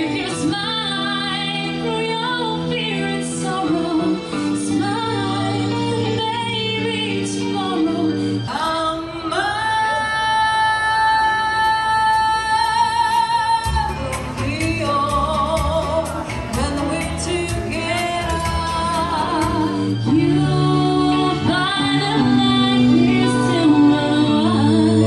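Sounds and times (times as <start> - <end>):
backing music: 0.0 - 25.0
woman singing: 0.0 - 25.0.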